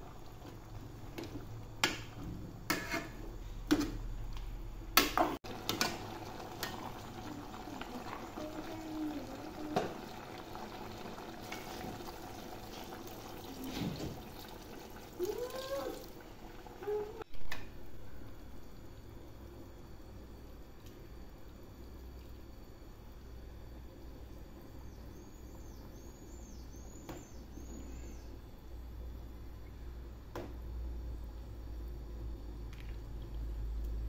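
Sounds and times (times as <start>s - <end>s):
metal ladle scraping steel pot: 2.7s - 3.2s
water pouring into pot: 5.5s - 17.1s.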